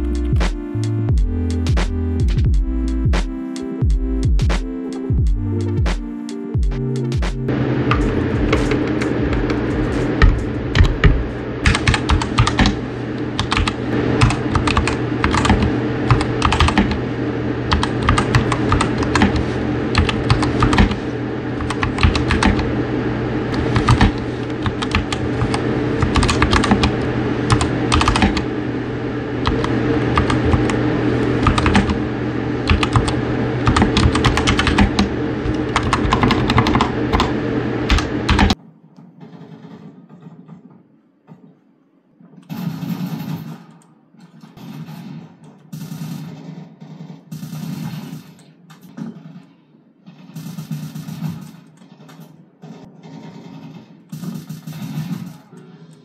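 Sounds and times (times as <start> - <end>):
steady low hum: 0.0 - 39.0
mechanical keyboard typing: 7.8 - 17.1, 17.7 - 22.8, 23.5 - 28.6, 29.4 - 32.0, 32.6 - 38.6.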